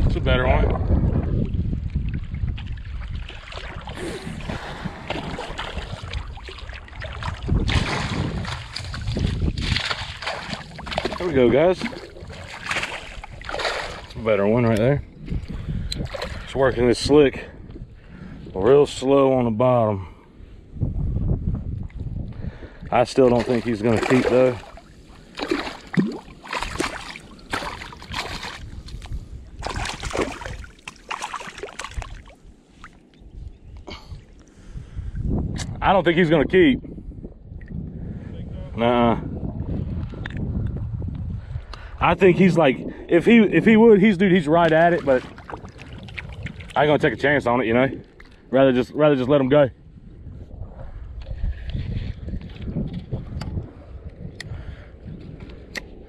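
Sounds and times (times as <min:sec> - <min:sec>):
wind on microphone: 0:00.0 - 0:56.0
water sloshing: 0:02.0 - 0:16.6, 0:22.9 - 0:33.1, 0:44.5 - 0:47.0
net splashing in water: 0:05.1 - 0:11.2, 0:11.8 - 0:14.1, 0:23.3 - 0:28.7, 0:29.6 - 0:32.4.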